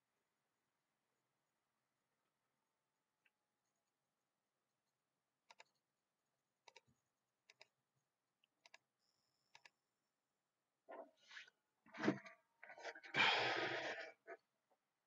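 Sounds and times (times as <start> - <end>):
computer mouse clicks: 5.5 - 5.8, 6.6 - 7.8, 8.5 - 8.9, 9.5 - 9.8.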